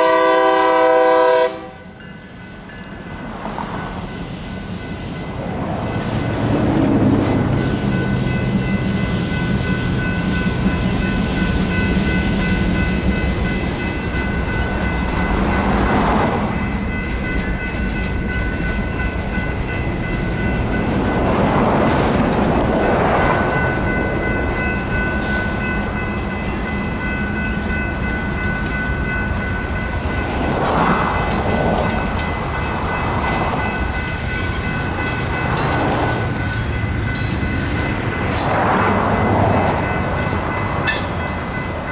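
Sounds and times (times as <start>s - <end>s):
crossing bells ringing: 0.0s - 41.9s
freight cars rumbling and clacking: 2.2s - 41.9s
road vehicles passing: 2.9s - 28.0s, 28.8s - 41.9s.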